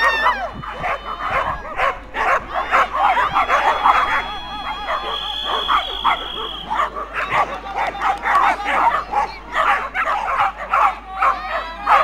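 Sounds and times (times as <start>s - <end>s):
dogs barking and yipping: 0.0s - 12.0s
steady high tone: 1.0s - 7.8s.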